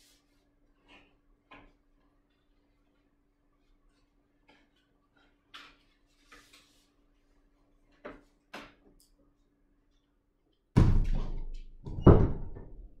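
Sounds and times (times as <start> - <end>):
sharp thump: 10.8 - 11.5
door shutting with bang: 10.8 - 12.8.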